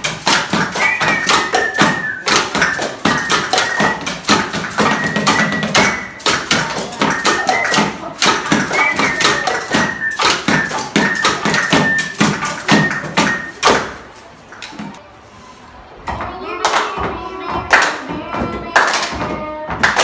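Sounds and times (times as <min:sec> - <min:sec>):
sticks drumming on tins: 0:00.0 - 0:14.0
tapping on desks and bottles: 0:00.0 - 0:14.0.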